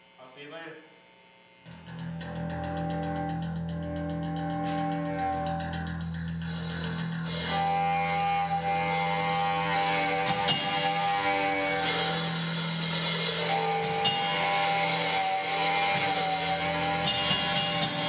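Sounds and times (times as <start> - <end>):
electric guitar chords: 1.1 - 18.0
live rock band playing: 1.9 - 18.0
drum kit with cymbals: 4.3 - 18.0.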